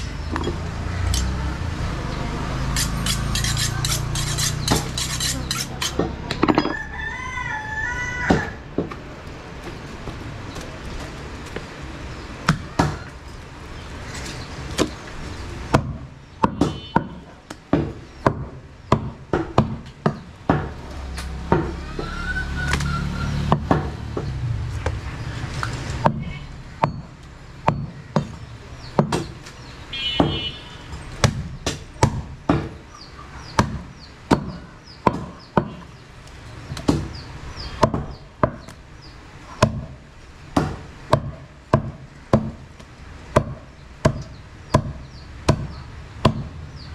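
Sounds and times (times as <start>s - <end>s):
cleaver chopping meat on wood: 3.9s - 6.2s, 15.7s - 22.0s, 23.5s - 24.4s, 26.0s - 29.4s, 31.2s - 32.8s, 33.5s - 35.9s, 36.7s - 38.8s, 39.6s - 42.6s, 43.3s - 46.6s.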